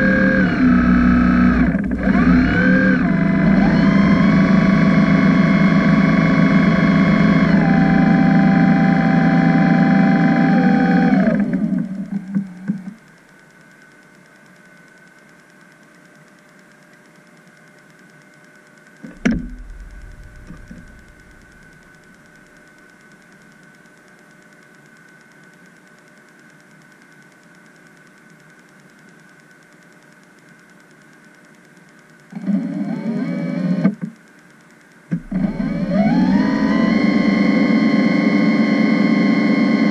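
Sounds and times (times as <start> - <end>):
sudden low thump: 19.1 - 21.6.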